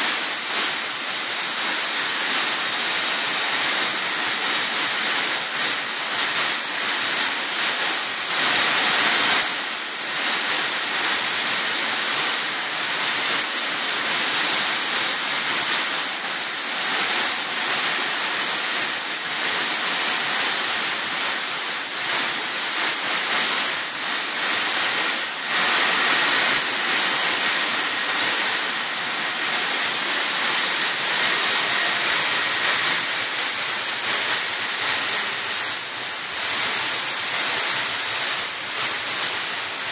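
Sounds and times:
high thin whine: 0.0 - 39.9
laser cutter rushing noise: 0.0 - 39.9.

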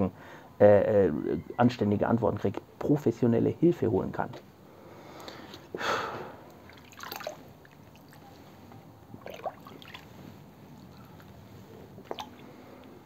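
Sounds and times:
water sloshing and splashing: 6.5 - 12.9.

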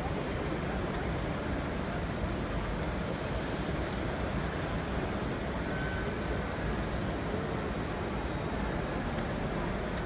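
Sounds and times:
crowded hall din: 0.0 - 3.2.

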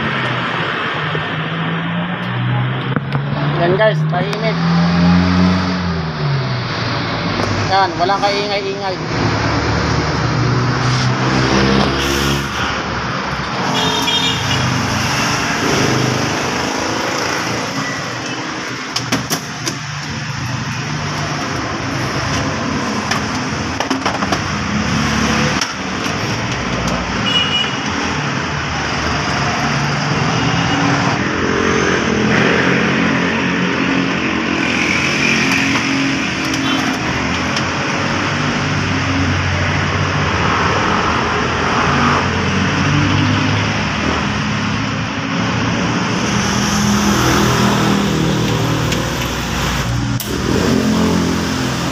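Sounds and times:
engine and traffic noise: 0.0 - 51.9.

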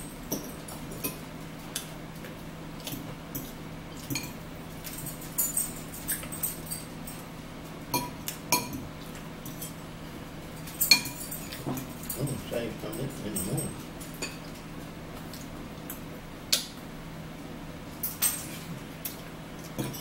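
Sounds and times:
cutlery clinking on plates: 10.7 - 12.4, 19.6 - 20.0.

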